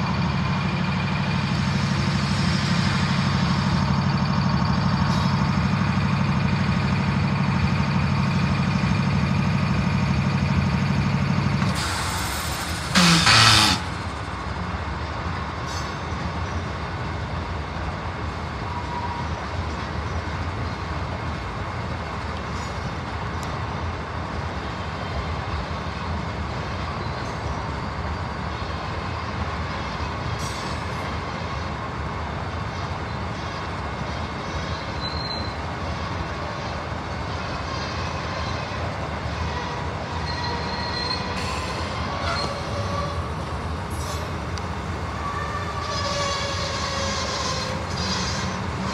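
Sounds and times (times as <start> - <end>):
diesel train rumbling: 0.0 - 48.9
wheel squeals: 11.0 - 14.2, 34.5 - 36.8, 37.6 - 44.3, 45.2 - 48.9.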